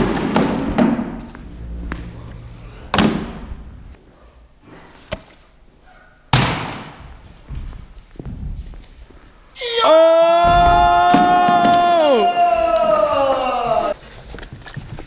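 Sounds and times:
echoing knocks on wooden ramp: 0.0s - 1.4s.

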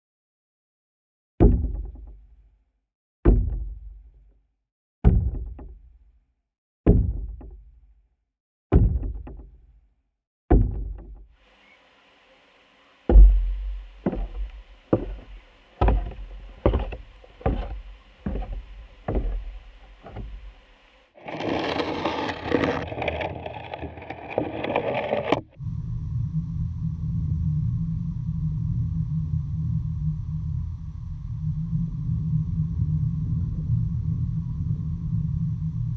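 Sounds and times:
faint steady hum: 11.4s - 21.8s, 25.6s - 35.9s
knocks on wooden boards: 13.1s - 20.8s
rough scraping on boards: 13.1s - 25.6s.

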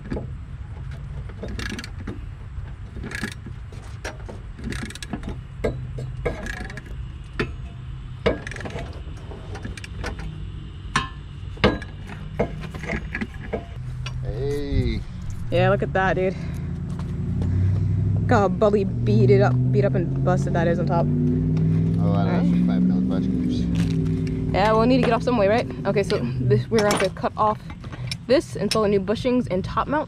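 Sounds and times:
steady low hum: 0.0s - 30.0s
wrench clicking and clanking: 1.4s - 2.2s, 3.0s - 3.5s, 4.1s - 8.9s.

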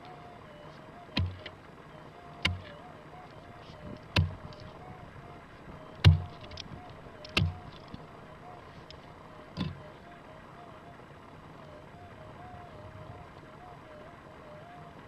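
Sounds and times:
faint wavering hum: 0.0s - 15.0s
pick striking stony soil: 4.1s - 4.6s, 6.0s - 6.7s.

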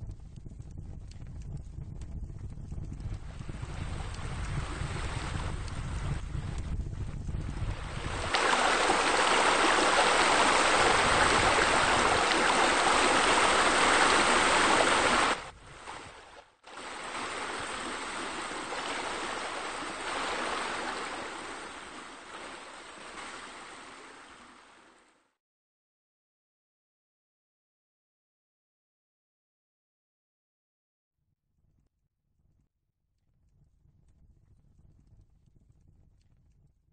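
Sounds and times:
low rumble: 0.0s - 8.5s
water splashing like waterfall: 3.3s - 6.7s, 7.5s - 25.1s.

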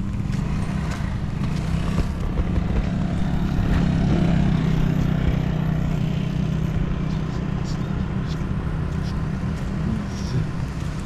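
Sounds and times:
street noise: 0.0s - 11.0s
vehicle engine droning: 0.0s - 11.0s.

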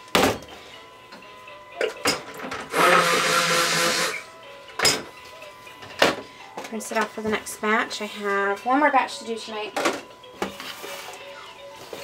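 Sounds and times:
immersion blender whirring: 2.7s - 4.3s.

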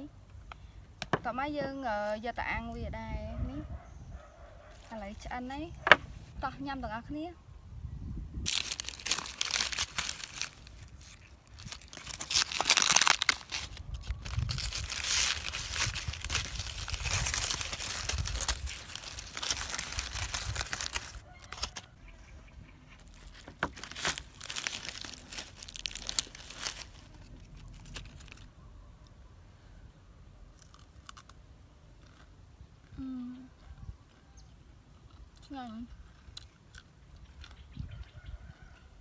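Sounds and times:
dry leaf wrapping crackling: 4.6s - 6.0s, 8.4s - 28.5s, 30.6s - 31.4s.

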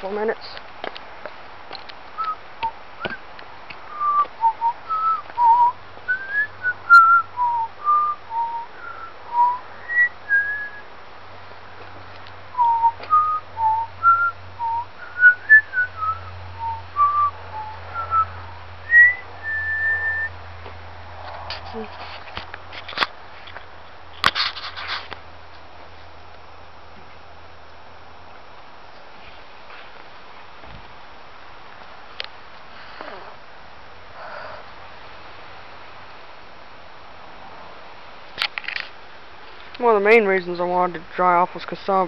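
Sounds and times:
person whistling a tune: 3.9s - 10.8s, 12.6s - 18.3s, 18.9s - 20.3s.

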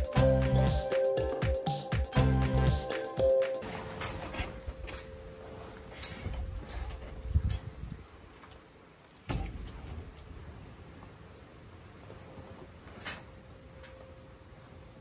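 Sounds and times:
canvas rustling: 3.6s - 7.8s, 9.4s - 13.5s.

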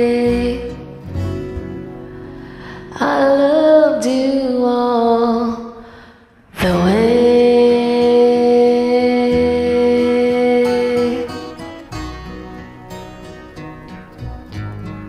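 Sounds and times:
person singing long notes: 6.5s - 11.6s.

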